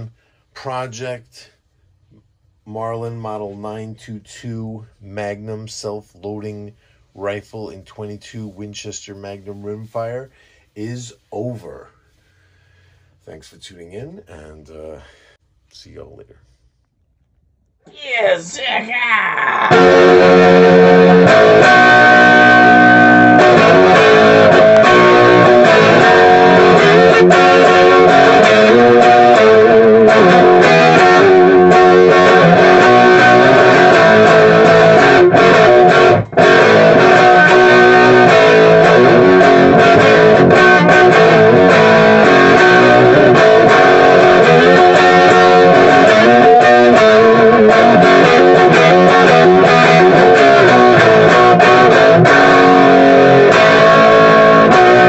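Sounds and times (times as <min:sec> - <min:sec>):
electric guitar music: 0:19.6 - 0:55.0.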